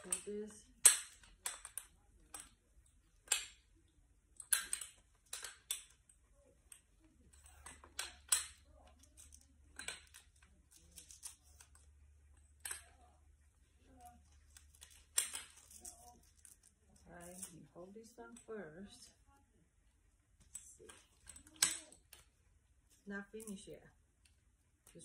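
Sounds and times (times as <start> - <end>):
chair frame poles clicking: 0.0 - 2.6, 4.4 - 6.1
handling rustles: 13.6 - 19.2.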